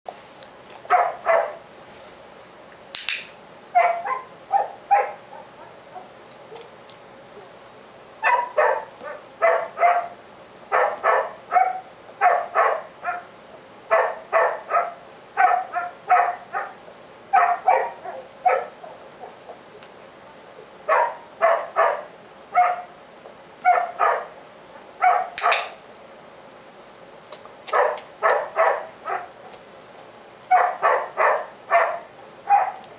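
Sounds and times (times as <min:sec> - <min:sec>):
dog barking: 0:00.9 - 0:01.6, 0:03.8 - 0:06.6, 0:08.2 - 0:13.3, 0:13.9 - 0:19.4, 0:20.9 - 0:23.0, 0:23.6 - 0:24.4, 0:25.0 - 0:25.7, 0:27.7 - 0:29.6, 0:30.5 - 0:32.8.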